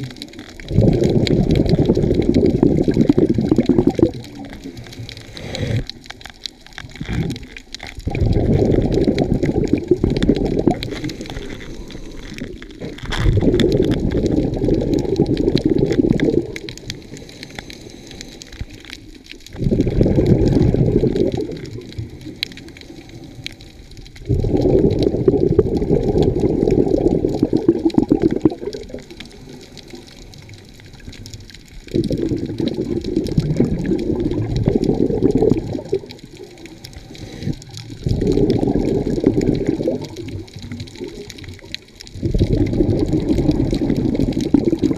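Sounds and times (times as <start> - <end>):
underwater exhaled bubbles rumbling: 0.0 - 44.9.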